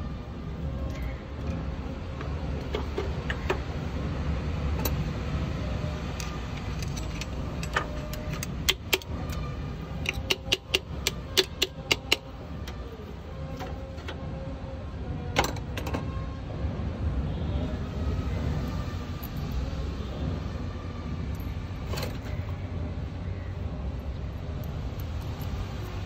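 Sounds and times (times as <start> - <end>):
metallic clinks of tools: 24.5 - 26.0.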